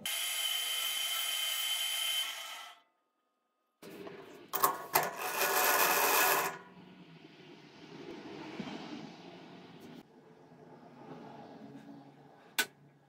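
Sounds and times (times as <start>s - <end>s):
metal lathe cutting: 0.0s - 2.8s, 5.0s - 6.6s.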